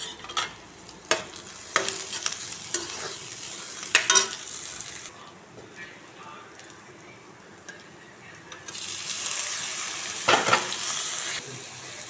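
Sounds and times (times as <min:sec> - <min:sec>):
onion sizzling in hot oil: 0:00.0 - 0:05.7, 0:06.5 - 0:12.0
metal spatula scraping pan: 0:01.8 - 0:04.4.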